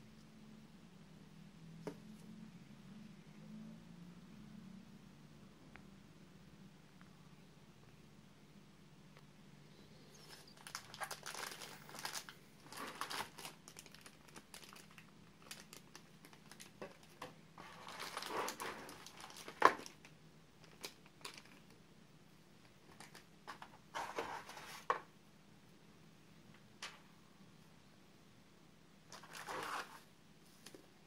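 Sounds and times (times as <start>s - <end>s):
plastic bags crinkling: 10.2s - 21.8s, 22.8s - 24.9s, 29.1s - 30.0s.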